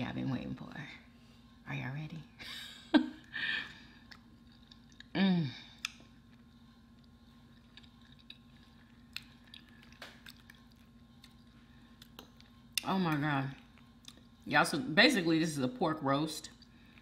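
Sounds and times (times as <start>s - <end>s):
chewing soft food: 3.7s - 14.5s, 16.4s - 17.0s.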